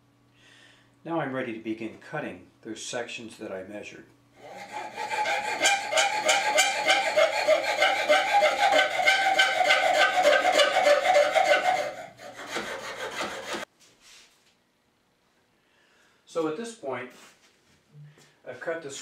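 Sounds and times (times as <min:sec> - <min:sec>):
saw rasping through bamboo: 0:04.4 - 0:13.7.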